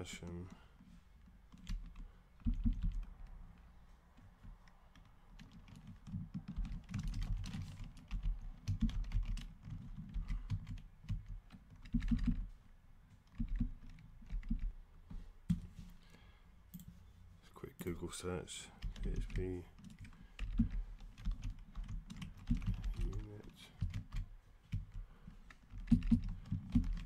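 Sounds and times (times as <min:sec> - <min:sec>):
typing on computer keyboard: 0:01.5 - 0:03.4, 0:04.4 - 0:12.5, 0:13.3 - 0:14.7, 0:18.8 - 0:27.0.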